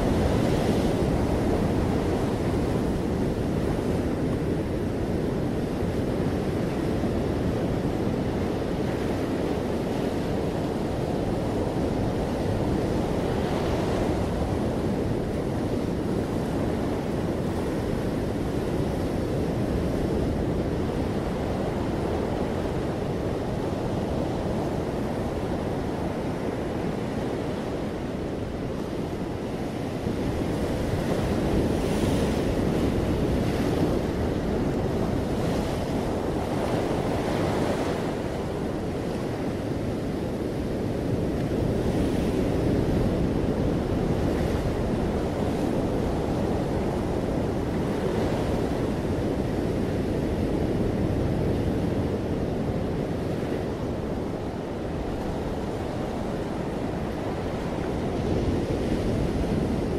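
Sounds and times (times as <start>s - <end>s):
ocean surf breaking on beach: 0.0s - 59.9s.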